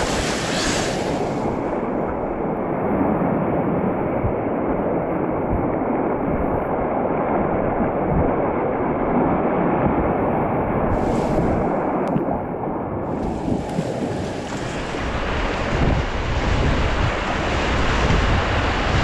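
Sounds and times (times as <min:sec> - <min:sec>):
whitewater rapids rushing: 0:00.0 - 0:02.4, 0:13.1 - 0:19.0.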